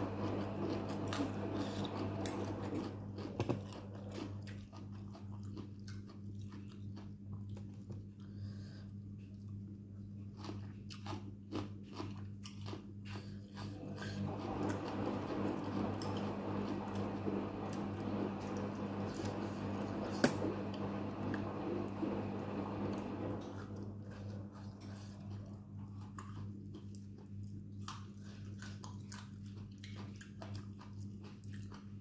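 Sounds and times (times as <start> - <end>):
crunchy wet chewing: 0.0 - 8.5, 9.2 - 14.2, 23.5 - 32.0
steady low hum: 0.0 - 32.0.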